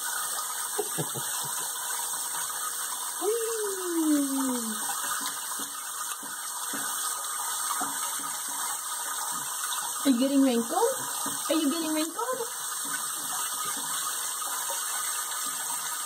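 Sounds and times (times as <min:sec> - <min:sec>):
faucet running into sink: 0:00.0 - 0:16.0
water splashing: 0:00.0 - 0:16.0
voice sliding down in pitch: 0:03.2 - 0:04.8.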